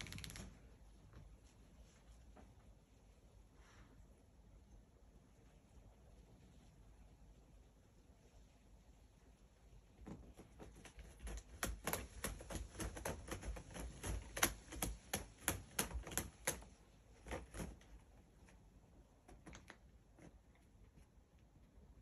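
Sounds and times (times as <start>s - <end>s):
cat clawing cardboard scratcher: 10.2s - 18.4s.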